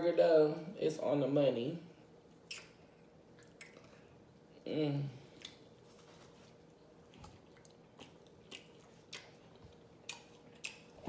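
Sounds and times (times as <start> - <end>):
person chewing wetly: 3.4 - 4.0, 5.3 - 5.8, 6.5 - 11.0.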